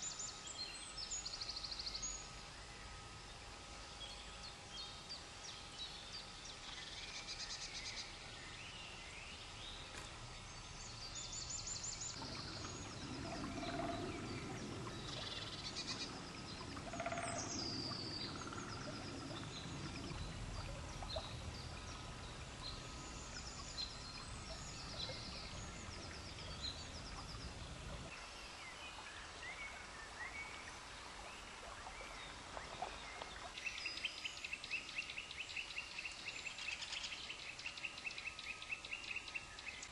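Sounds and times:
songbirds singing and calling: 0:00.0 - 0:39.9
low rumbling noise: 0:08.1 - 0:33.5.

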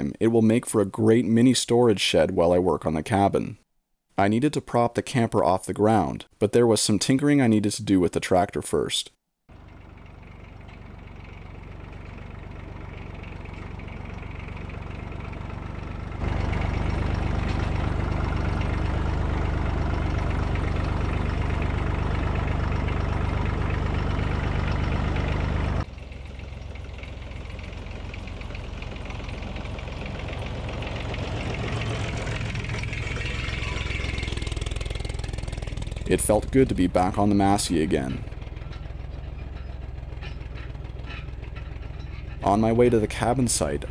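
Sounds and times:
diesel tractor engine running: 0:09.5 - 0:43.9.

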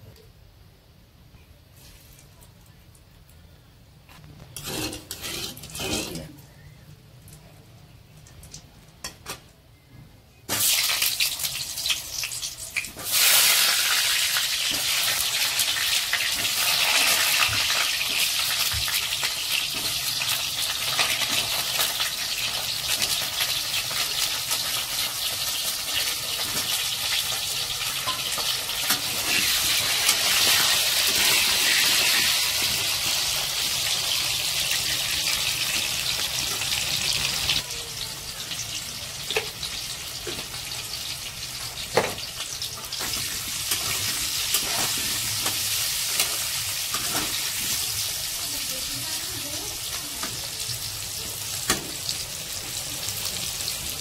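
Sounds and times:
potatoes sizzling in hot oil: 0:10.5 - 0:54.0.

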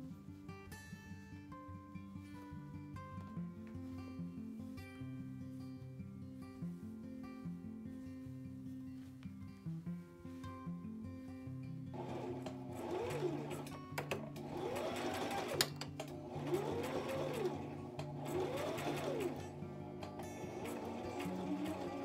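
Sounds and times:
background music: 0:11.9 - 0:22.0
sewing machine stitching: 0:12.0 - 0:22.0.

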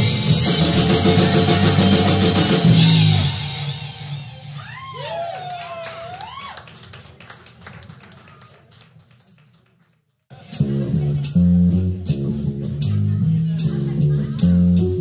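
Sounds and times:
electric bass riff: 0:00.0 - 0:04.3, 0:10.4 - 0:15.0
rock band playing: 0:00.0 - 0:04.7, 0:10.4 - 0:15.0.

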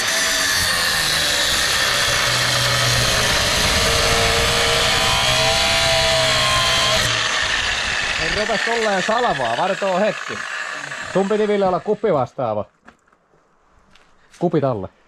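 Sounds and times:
angle grinder cutting metal: 0:00.0 - 0:12.3.

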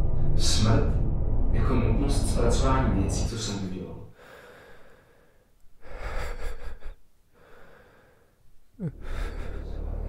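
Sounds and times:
person breathing heavily: 0:04.1 - 0:10.0.

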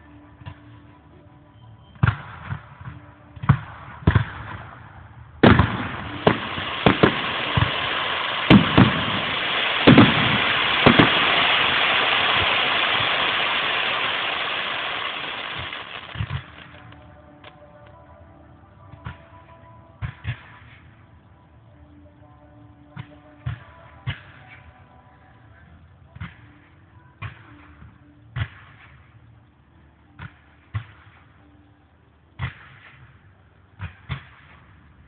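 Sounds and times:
firework bangs: 0:02.0 - 0:17.6
dense firework crackle: 0:02.0 - 0:17.9.

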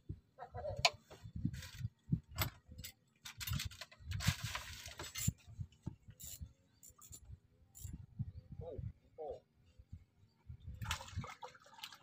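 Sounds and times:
fishing tackle clicking and clinking: 0:06.1 - 0:08.0.

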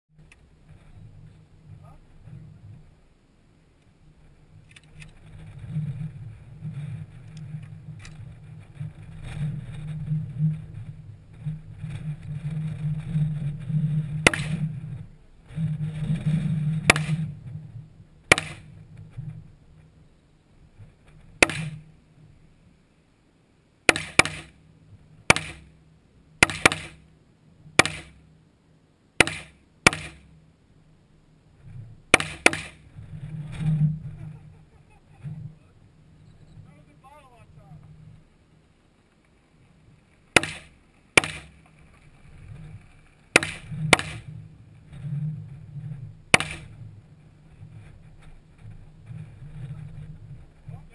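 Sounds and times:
low steady rumble: 0:00.1 - 0:50.9
rifle shots: 0:16.9 - 0:17.2, 0:18.3 - 0:18.7, 0:25.3 - 0:25.6, 0:26.4 - 0:27.0, 0:27.8 - 0:28.2, 0:29.2 - 0:30.2, 0:32.1 - 0:32.8, 0:40.4 - 0:41.5, 0:46.3 - 0:46.7.

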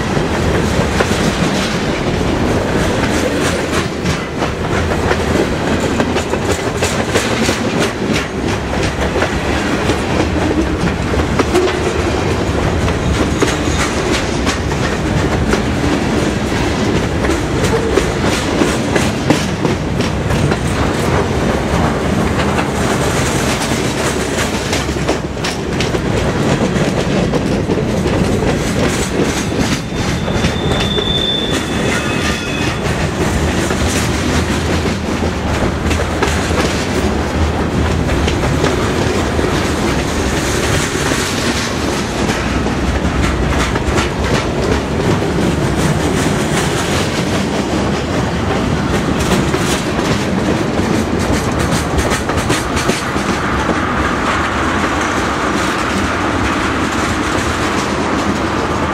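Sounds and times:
train wheels clicking over rail joints: 0:00.0 - 0:58.9
high squeal: 0:29.7 - 0:32.9.

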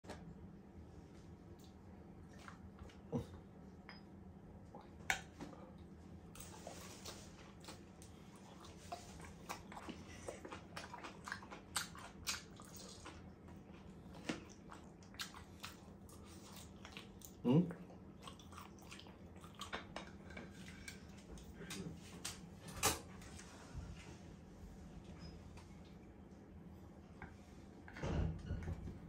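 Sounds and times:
mouth sounds of eating: 0:01.6 - 0:03.5, 0:06.4 - 0:19.8.

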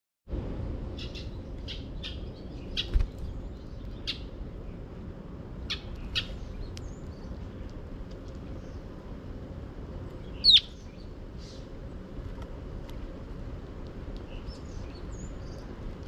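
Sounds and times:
steady low rumble: 0:00.3 - 0:16.0
sparrows chirping: 0:00.9 - 0:09.2, 0:09.9 - 0:11.9, 0:14.2 - 0:16.0.

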